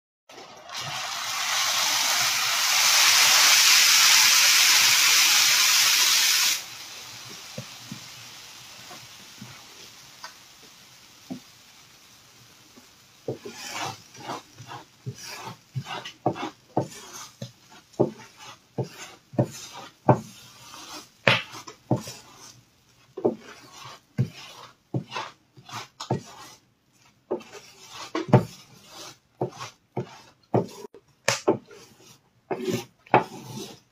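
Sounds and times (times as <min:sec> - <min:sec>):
liquid sizzling on hot griddle: 0:00.4 - 0:31.8
scraper scraping griddle: 0:13.3 - 0:33.9.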